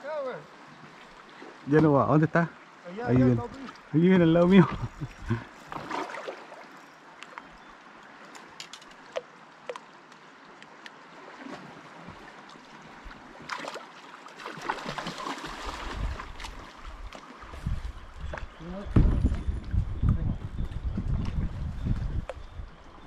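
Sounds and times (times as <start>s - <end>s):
water lapping and splashing: 0.0s - 19.8s
paddle strokes splashing: 2.9s - 7.4s, 8.1s - 17.7s.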